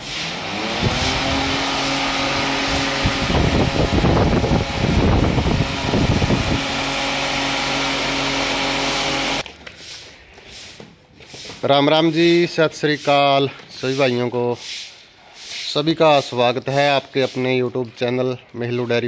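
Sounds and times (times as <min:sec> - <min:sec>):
electric fan running: 0:00.0 - 0:09.4
wind buffeting microphone: 0:02.3 - 0:06.8.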